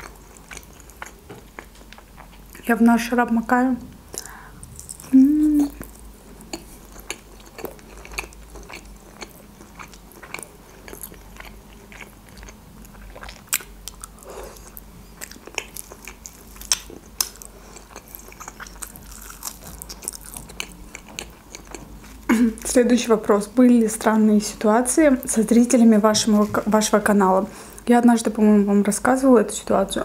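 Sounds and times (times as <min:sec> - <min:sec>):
chewing and mouth smacks: 0:04.1 - 0:22.2.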